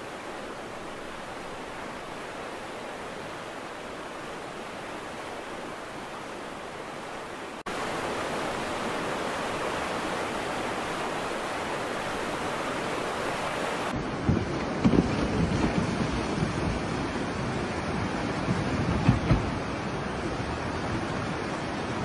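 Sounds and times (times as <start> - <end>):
floodwater rushing: 0.0 - 22.0.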